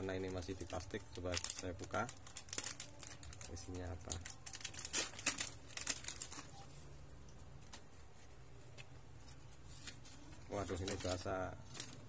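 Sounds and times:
plastic packaging crinkling and tearing: 0.0 - 6.7, 9.6 - 12.0.

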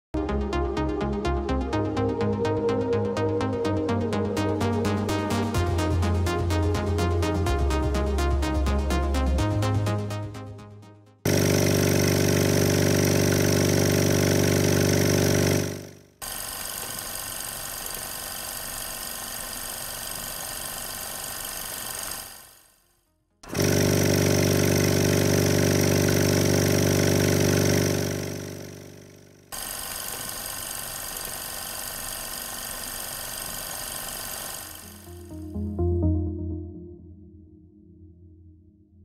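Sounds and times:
piston compressor running: 11.3 - 22.7, 23.4 - 35.5.

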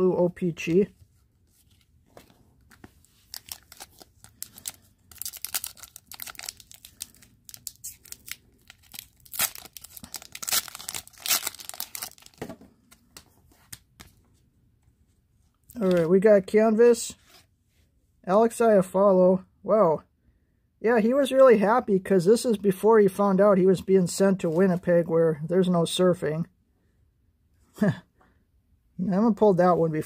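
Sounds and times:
plastic packaging rustling and tearing: 3.0 - 12.5.

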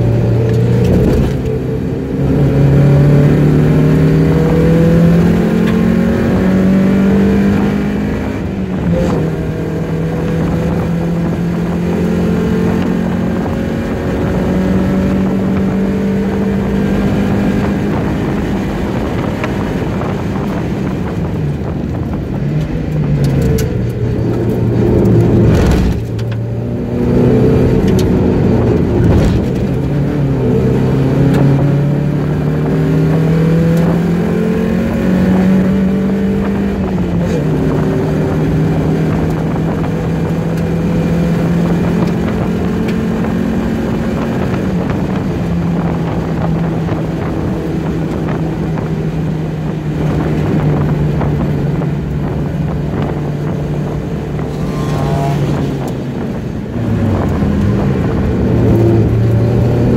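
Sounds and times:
car engine accelerating: 0.0 - 59.9.

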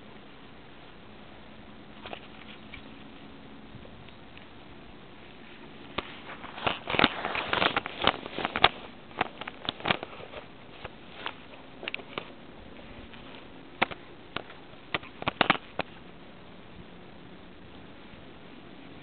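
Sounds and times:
twigs crackling against camera: 1.8 - 4.6, 5.2 - 16.2.

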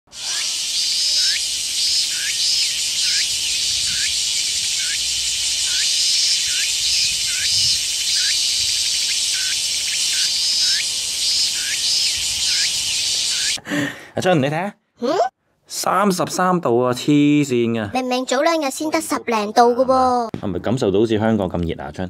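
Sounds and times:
insect chirping call: 0.1 - 13.6
insects buzzing: 0.1 - 13.6.

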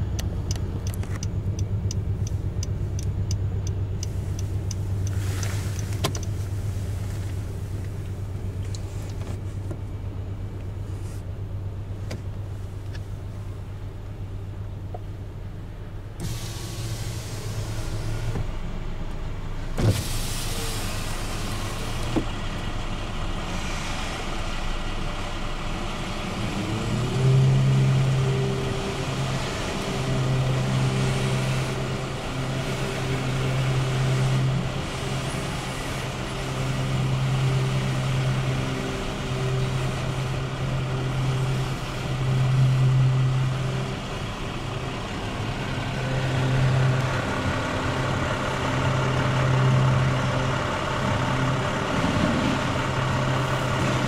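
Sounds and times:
steady hum: 0.0 - 26.6.

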